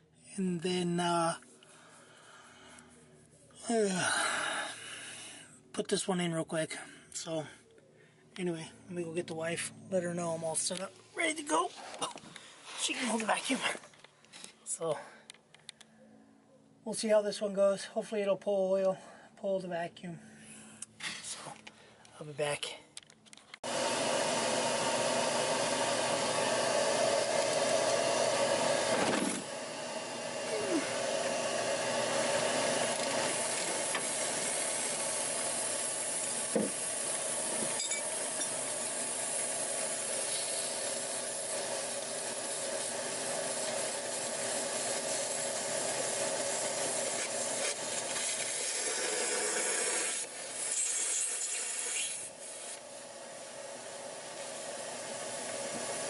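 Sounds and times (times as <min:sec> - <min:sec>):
vacuum cleaner running: 0:23.6 - 0:50.6, 0:52.3 - 0:56.0.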